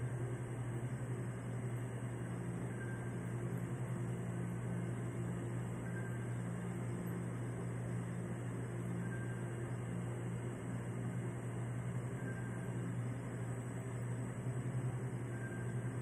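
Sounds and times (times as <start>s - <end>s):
low machine hum: 0.0s - 16.0s.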